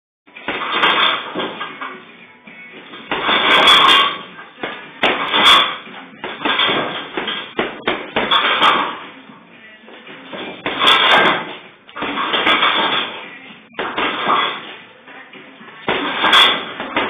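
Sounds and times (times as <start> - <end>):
background music: 0.3 - 17.0
punches on heavy bag: 0.4 - 1.7, 3.0 - 9.0, 10.3 - 13.2, 13.8 - 14.7, 15.9 - 17.0.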